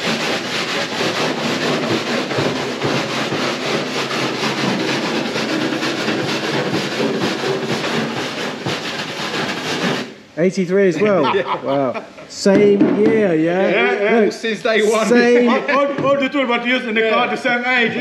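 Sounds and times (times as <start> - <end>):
wire brush scrubbing metal: 0.0 - 10.2.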